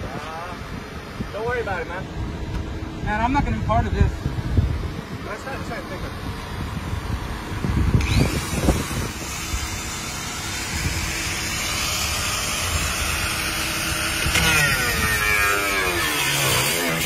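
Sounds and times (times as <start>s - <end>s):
angle grinder whining: 7.8s - 17.0s.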